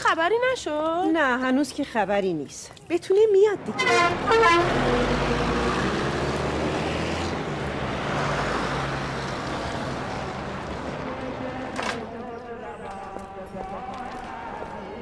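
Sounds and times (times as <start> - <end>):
buses driving past: 3.5 - 15.0.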